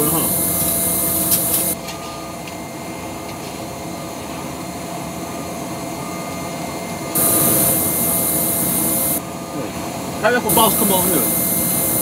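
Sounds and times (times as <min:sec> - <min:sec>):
loud high hiss: 0:00.0 - 0:01.8, 0:07.2 - 0:09.2, 0:10.3 - 0:12.0
machine drone with hum tones: 0:00.0 - 0:12.0.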